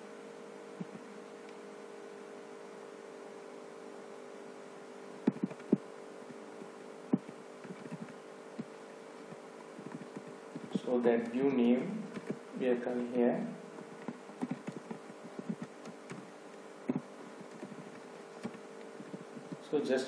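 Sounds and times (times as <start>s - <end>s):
electrical hum: 0.0s - 20.0s
computer mouse clicks: 5.3s - 5.8s, 14.0s - 16.3s.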